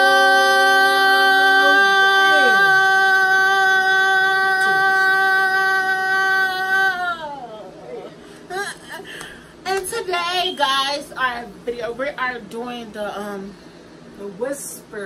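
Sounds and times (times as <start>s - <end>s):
women singing long note: 0.0s - 7.8s.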